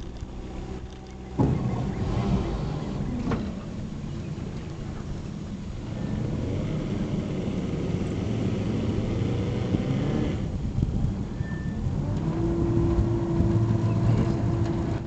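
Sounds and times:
boat motor running: 0:00.0 - 0:11.2, 0:11.8 - 0:15.0.

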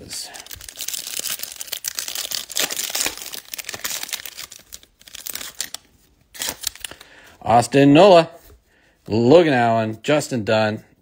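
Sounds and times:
foil wrapper tearing and crinkling: 0:00.4 - 0:07.0.

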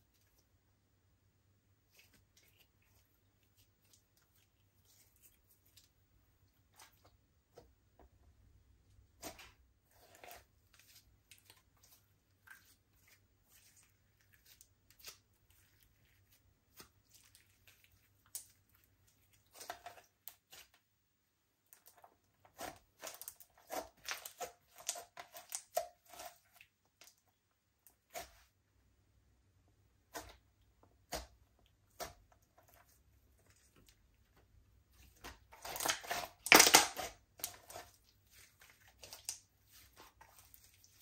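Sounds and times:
slime clicking and crackling: 0:35.1 - 0:41.0.

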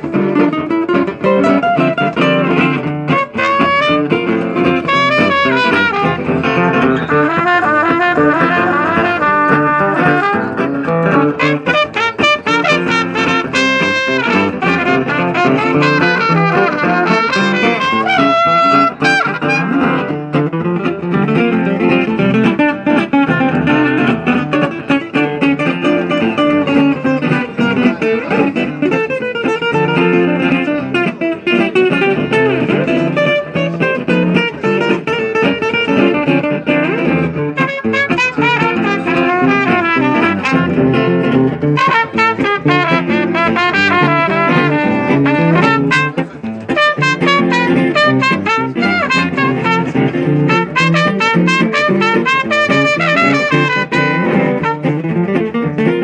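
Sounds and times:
trumpet melody: 0:00.0 - 0:24.9, 0:29.1 - 0:55.6
acoustic guitar strumming: 0:00.0 - 0:56.0.

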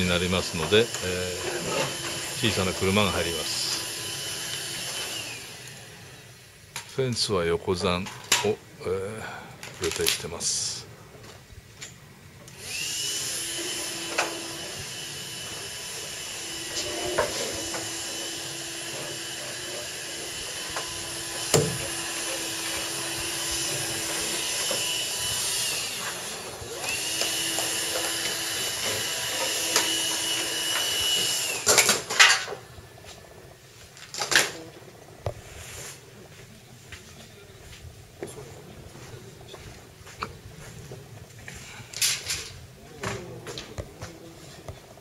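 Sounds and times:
power tool motor whining: 0:00.0 - 0:06.8, 0:12.4 - 0:35.2.

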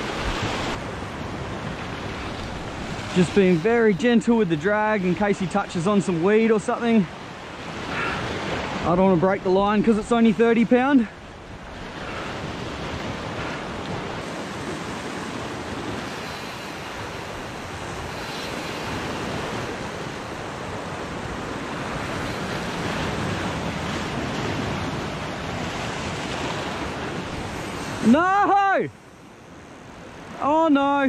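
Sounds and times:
sea waves washing against rocks: 0:00.0 - 0:31.0
wind on microphone: 0:11.3 - 0:28.1.

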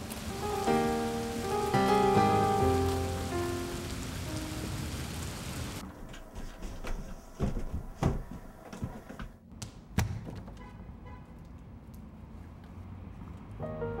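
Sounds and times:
steady hiss: 0:00.0 - 0:09.2
footsteps on stairs: 0:05.8 - 0:09.4.

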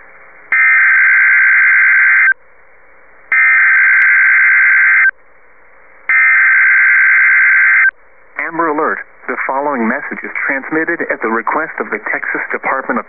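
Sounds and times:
faint radio static: 0:06.0 - 0:13.0.

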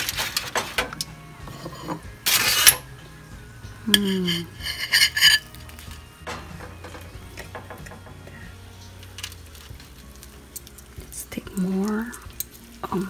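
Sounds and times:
cutlery scraping foil: 0:00.0 - 0:00.8, 0:01.5 - 0:02.9, 0:04.0 - 0:05.7
cutlery clinking on ceramic plate: 0:04.0 - 0:05.5.

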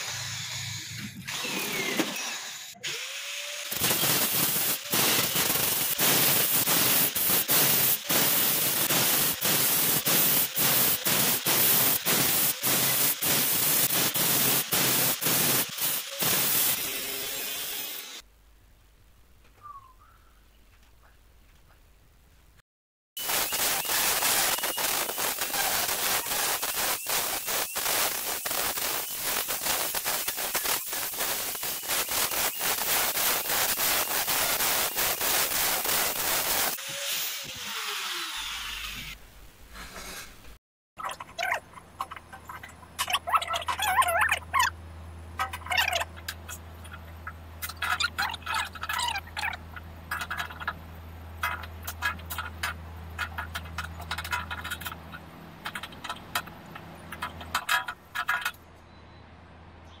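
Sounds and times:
angle grinder cutting steel: 0:00.0 - 0:18.2, 0:23.2 - 0:39.2.

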